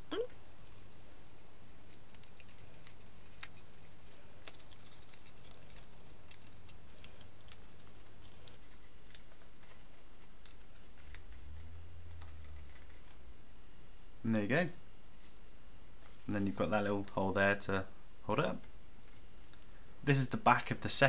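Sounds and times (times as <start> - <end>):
steady low hum: 0.0 - 21.0
card clicking and crackling: 0.6 - 13.2.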